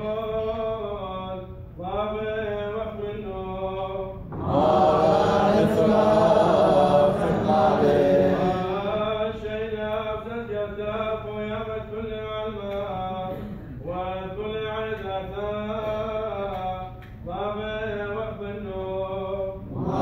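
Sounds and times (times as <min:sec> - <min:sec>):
liturgical chanting: 0:00.0 - 0:20.0
choir of voices singing: 0:04.3 - 0:09.1, 0:19.6 - 0:20.0.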